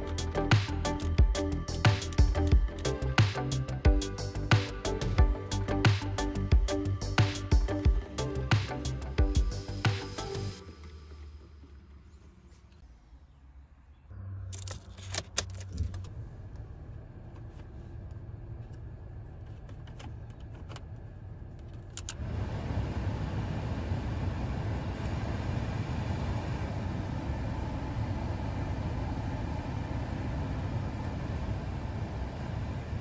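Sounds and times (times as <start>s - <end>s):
car engine starting and idling: 0.0s - 33.0s
blower fan air rush: 22.2s - 33.0s.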